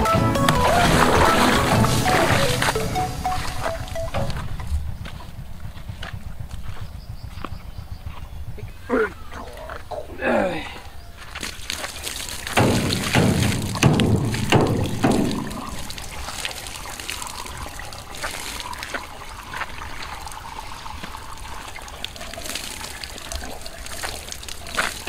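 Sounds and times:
water splashing: 0.0 - 4.8, 11.4 - 25.0
water pouring into steel drum: 12.2 - 25.0.

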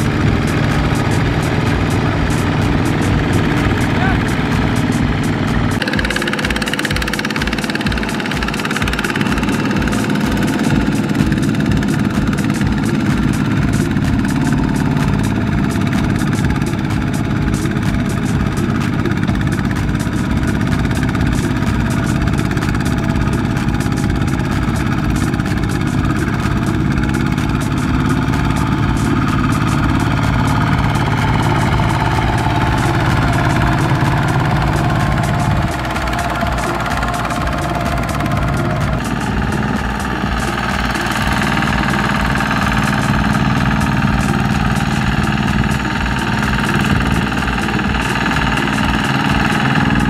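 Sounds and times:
diesel engine chugging: 0.0 - 50.0.

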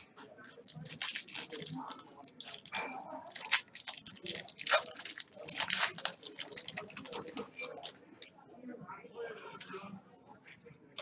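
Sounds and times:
foil wrapper tearing and crinkling: 0.6 - 7.9.

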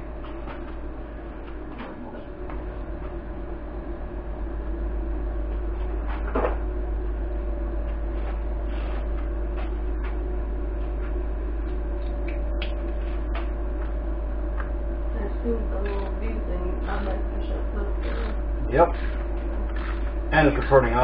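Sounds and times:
electrical hum: 0.0 - 21.0.

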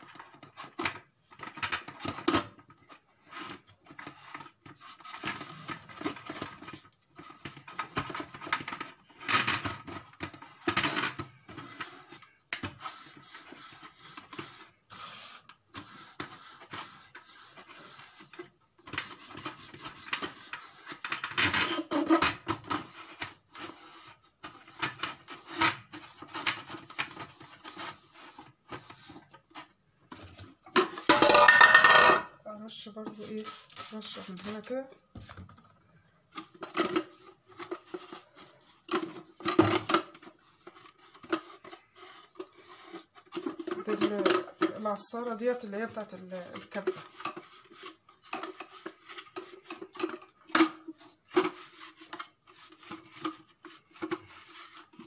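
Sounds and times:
plastic parts knocking: 30.2 - 32.2
cloth wiping plastic: 32.7 - 34.9.

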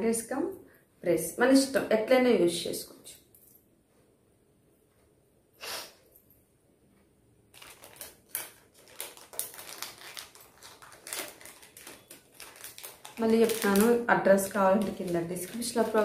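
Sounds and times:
jewelry clicks and crinkles: 7.5 - 16.0
packaging rustle: 7.5 - 16.0.

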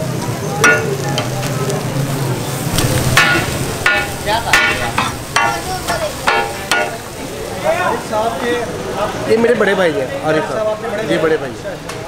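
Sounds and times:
chicken sizzling on a griddle: 0.0 - 11.8
metal spatula clangs: 0.6 - 1.0, 3.2 - 7.0.

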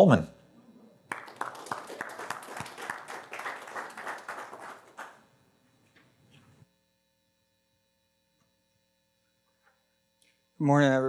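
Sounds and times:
congregation applauding: 1.1 - 5.3.

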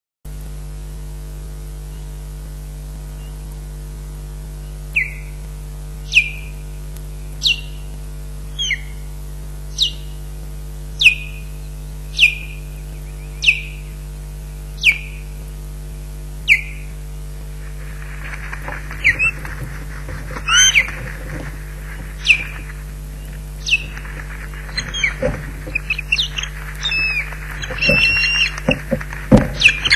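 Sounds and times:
mains hum: 0.3 - 29.9
rustle: 0.3 - 29.9
osprey alarm whistles: 20.4 - 20.9, 24.7 - 29.9.

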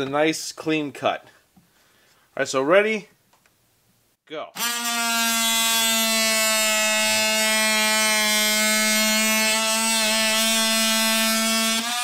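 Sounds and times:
oscillating tool cutting pipe: 4.6 - 12.0.

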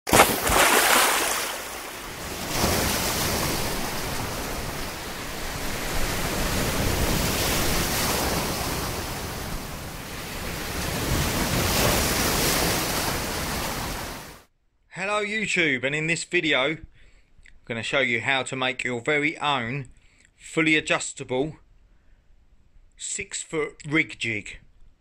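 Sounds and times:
waves breaking and washing in: 0.1 - 14.5.

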